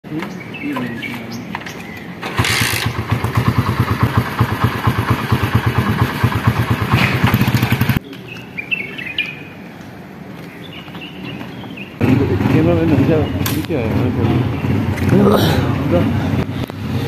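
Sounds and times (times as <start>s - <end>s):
birds chirping: 0.0s - 17.0s
small motorcycle engine running: 2.2s - 8.0s, 12.0s - 17.0s.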